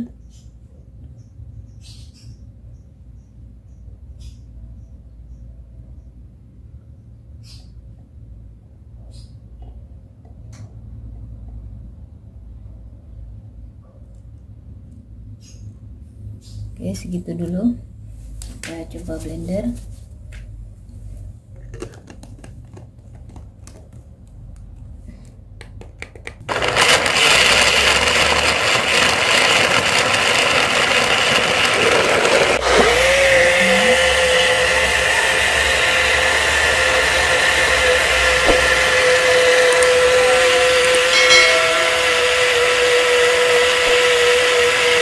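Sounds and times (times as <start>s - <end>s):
bottle blender running: 26.4s - 45.0s
steady motor whine: 26.5s - 45.0s.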